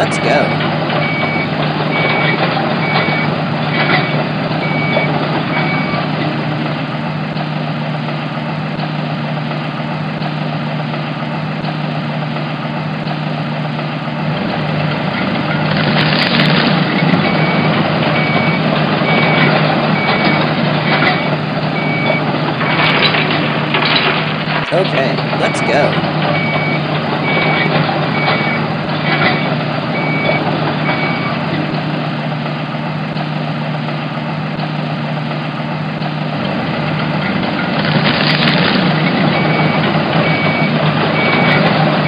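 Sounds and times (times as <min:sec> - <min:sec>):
reversing alarm beeping: 0:00.0 - 0:06.1, 0:17.2 - 0:22.9, 0:24.7 - 0:31.4, 0:39.3 - 0:42.0
heavy vehicle engine running: 0:00.0 - 0:42.0.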